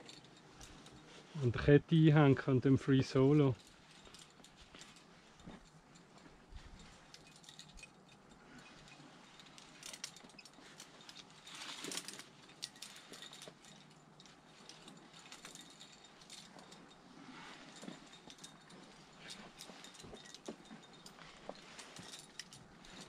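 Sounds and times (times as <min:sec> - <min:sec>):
climbing hardware clinking: 0:00.0 - 0:01.5, 0:03.1 - 0:23.0
scrape: 0:17.1 - 0:18.1.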